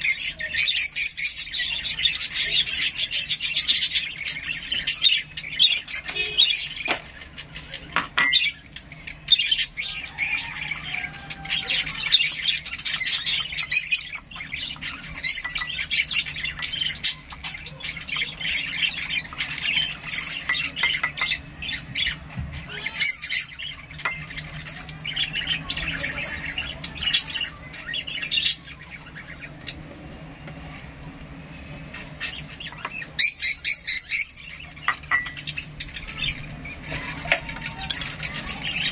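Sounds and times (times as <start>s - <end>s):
pet bird chirping and squawking: 0.0s - 29.8s.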